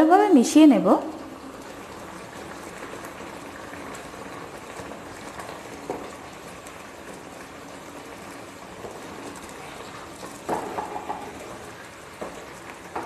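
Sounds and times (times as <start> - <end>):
curry bubbling and sizzling in a pan: 0.0 - 13.0
wooden spatula stirring: 5.0 - 13.0.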